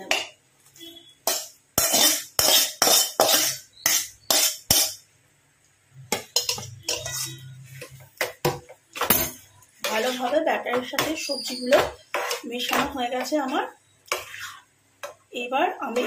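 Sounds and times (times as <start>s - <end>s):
spatula scraping steel bowl: 1.2s - 5.0s, 6.2s - 8.0s, 9.0s - 14.7s.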